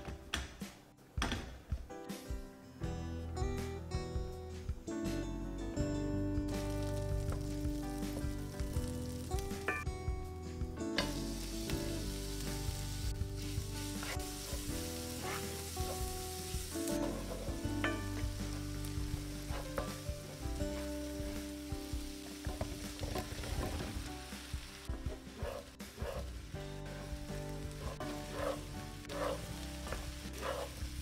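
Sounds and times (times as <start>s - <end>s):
butter and garlic sizzling: 6.4s - 9.9s, 11.0s - 31.0s
wooden spoon scraping pan: 28.0s - 30.7s.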